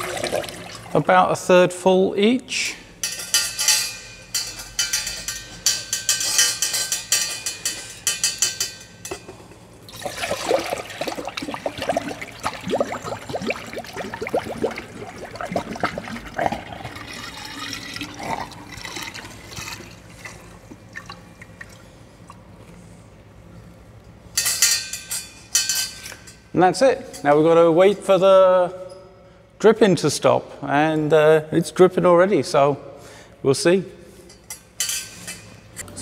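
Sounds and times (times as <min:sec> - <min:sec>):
water pouring through a funnel: 0:00.0 - 0:01.0, 0:09.9 - 0:20.4
water trickling: 0:09.9 - 0:20.0.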